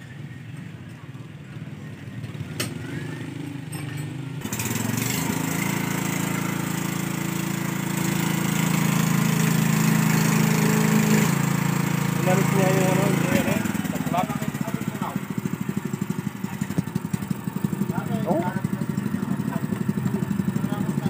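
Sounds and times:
faint low engine rumble: 0.0s - 4.4s, 12.2s - 21.0s
diesel engine running: 0.0s - 21.0s.

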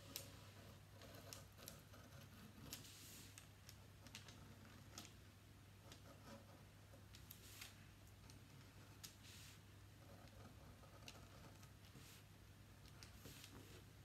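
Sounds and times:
pen scratching on paper: 0.2s - 3.3s, 8.5s - 12.2s.

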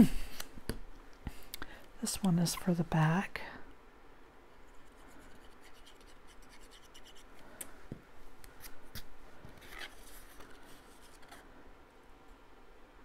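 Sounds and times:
cardstock scratching and rubbing: 4.7s - 7.3s.

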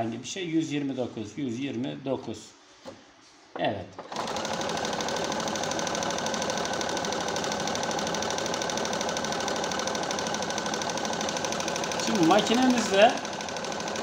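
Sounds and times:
sewing machine stitching: 4.0s - 14.0s.

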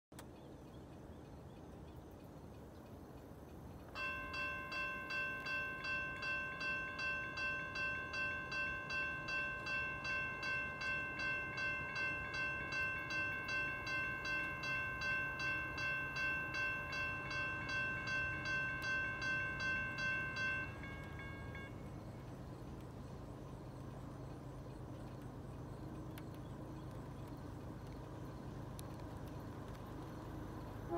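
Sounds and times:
railroad crossing bell ringing: 3.8s - 25.6s.

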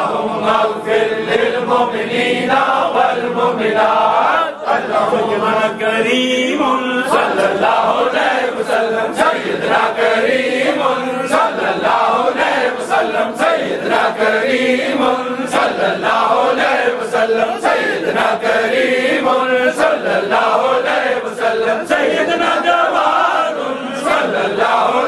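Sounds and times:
men chanting in unison: 0.0s - 25.0s.

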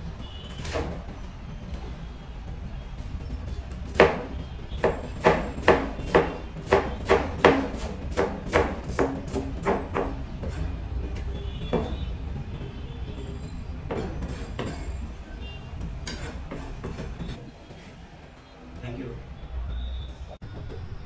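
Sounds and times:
knife slicing cabbage on board: 4.0s - 10.7s, 13.9s - 14.9s, 16.0s - 18.0s.

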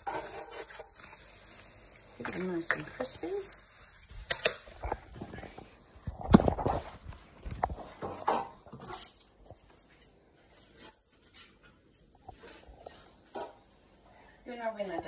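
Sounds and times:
kitchen knocks and clicks: 7.6s - 9.8s.

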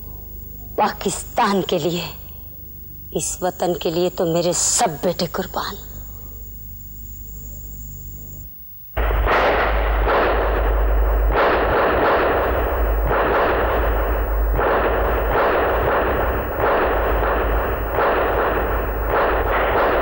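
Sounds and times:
rifle fire bursts: 9.0s - 20.0s.

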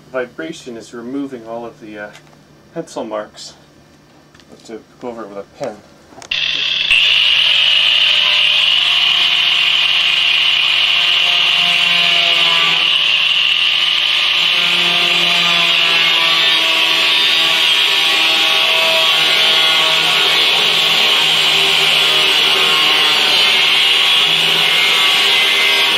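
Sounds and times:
angle grinder cutting sheet metal: 6.3s - 25.9s.

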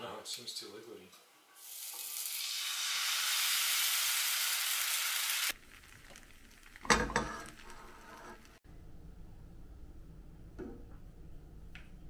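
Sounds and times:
batter sizzling in frying pan: 1.6s - 8.6s.

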